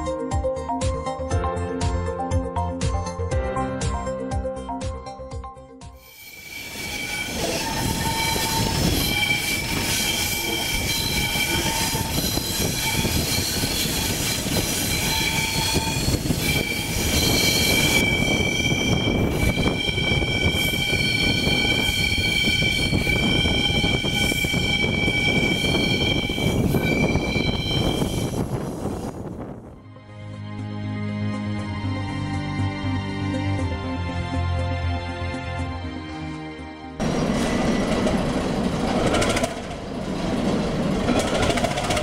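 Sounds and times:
train wheels squealing on rails: 6.0 - 29.3, 37.0 - 42.0
rumble of train running gear: 6.4 - 29.8, 37.0 - 42.0.

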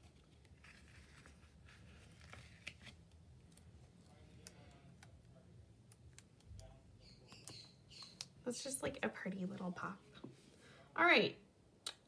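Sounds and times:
faint paper rustling: 0.0 - 5.4.

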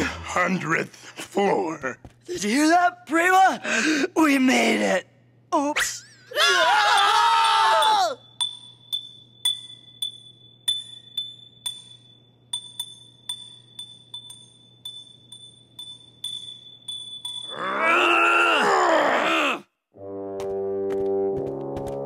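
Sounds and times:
glass figurine clinking on stairs: 7.5 - 17.6.

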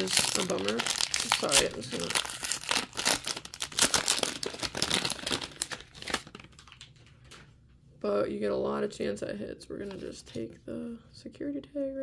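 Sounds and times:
plastic wrapper crinkling and tearing: 0.0 - 7.5.

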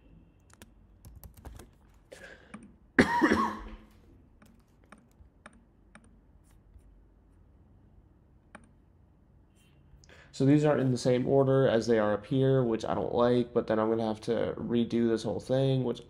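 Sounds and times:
keyboard and mouse clicks: 0.4 - 2.8, 4.4 - 6.6, 8.5 - 8.8.

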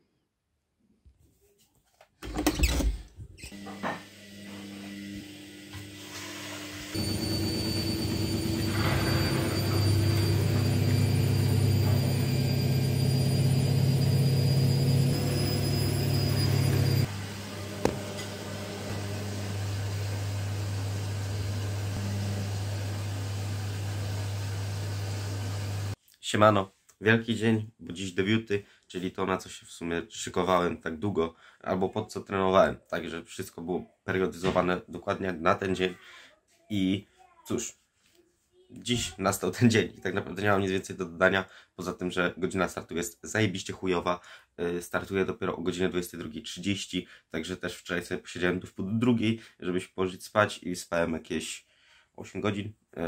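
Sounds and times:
fan motor humming: 7.0 - 26.0.

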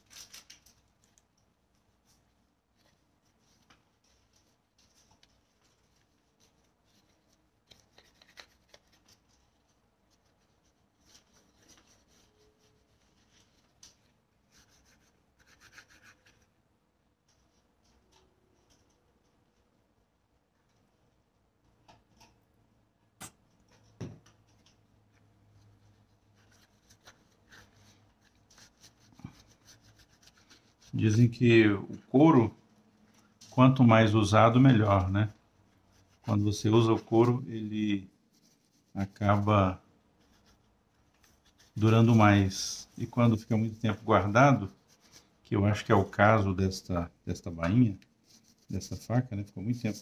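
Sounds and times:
cloth rubbing on leather: 26.0 - 31.4, 38.2 - 46.5, 48.2 - 50.0
cloth rubbing leather: 38.3 - 45.3.

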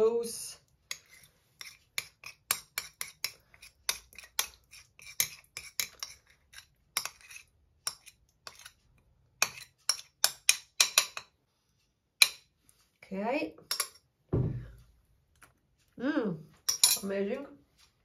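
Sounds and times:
metal spoon scraping ceramic plate: 0.9 - 8.8, 9.4 - 11.3.

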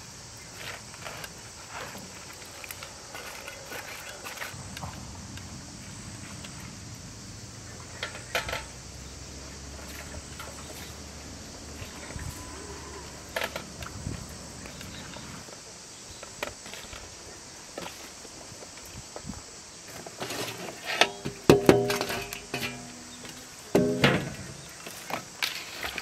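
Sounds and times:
insects hissing: 0.0 - 26.0
clicks and knocks of metal tray: 8.0 - 8.8, 20.2 - 23.0, 23.7 - 24.7.

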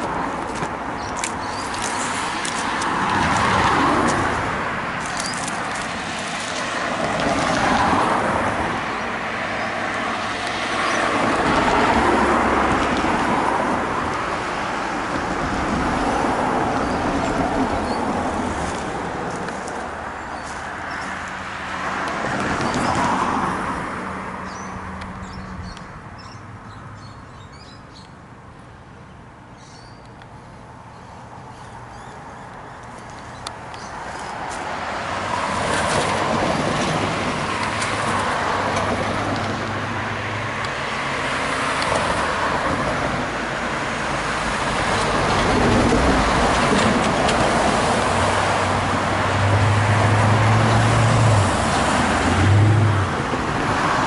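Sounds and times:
cars passing: 0.0 - 54.0
small birds chirping: 0.9 - 2.2, 29.1 - 34.4.

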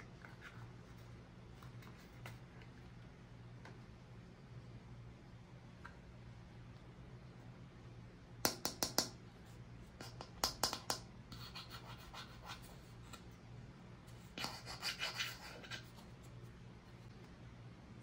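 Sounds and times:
toys scratching and rubbing: 14.3 - 16.5.

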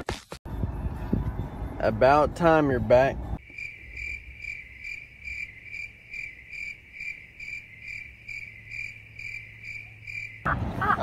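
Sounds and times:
crickets chirping: 3.4 - 11.0.

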